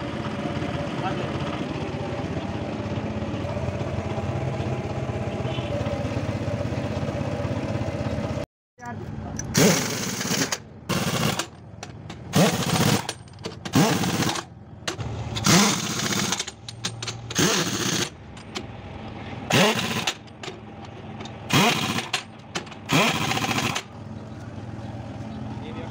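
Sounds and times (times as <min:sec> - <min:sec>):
impact wrench hammering: 0:09.5 - 0:18.7, 0:19.5 - 0:23.9.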